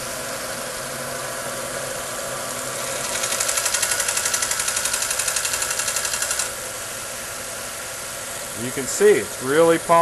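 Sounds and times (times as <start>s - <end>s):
belt sander running: 0.0s - 10.0s.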